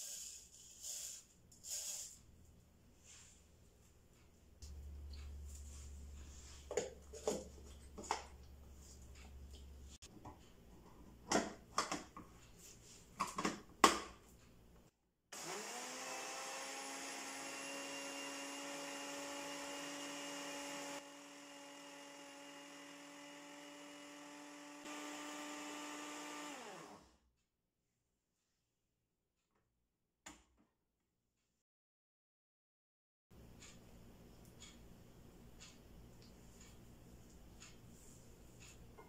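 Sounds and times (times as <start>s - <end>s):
blender motor grinding: 15.4s - 27.2s.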